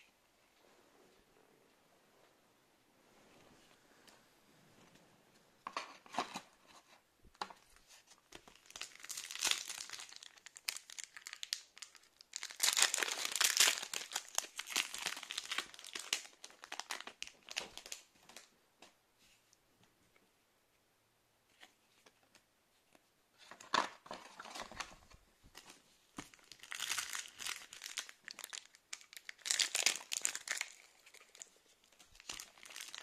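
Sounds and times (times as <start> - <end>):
foil wrapper crinkling and tearing: 8.4 - 18.1, 26.3 - 33.0.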